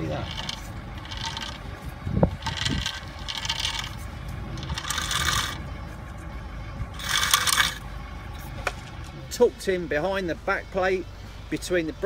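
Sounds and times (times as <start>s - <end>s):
metal scraping on brake disc: 0.0s - 6.3s, 6.9s - 9.3s.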